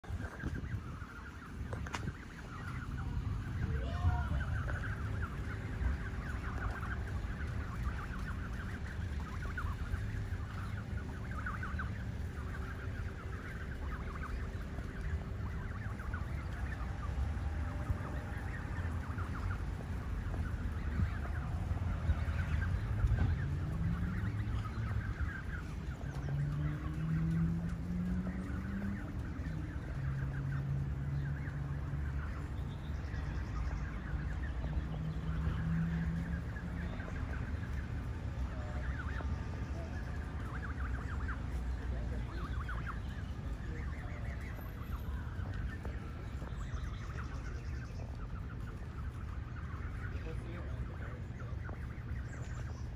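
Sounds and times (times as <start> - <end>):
geese and goslings calling: 0.0 - 52.9.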